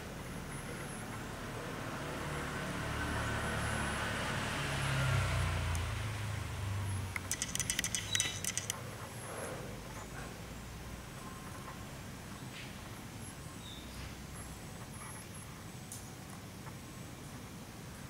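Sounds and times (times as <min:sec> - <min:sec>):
vehicle engine passing by: 0:00.0 - 0:08.7
sharp clicks and rattles: 0:07.1 - 0:08.8.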